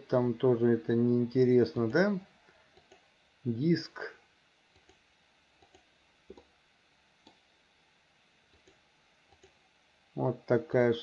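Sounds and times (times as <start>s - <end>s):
faint computer mouse clicks: 2.7s - 3.0s, 4.7s - 5.0s, 5.6s - 6.5s, 7.2s - 7.4s, 8.5s - 9.6s.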